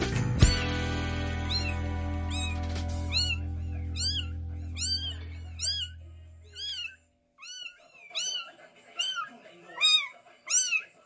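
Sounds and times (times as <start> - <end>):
background music: 0.0 - 5.6
kitten mewing: 1.4 - 11.0.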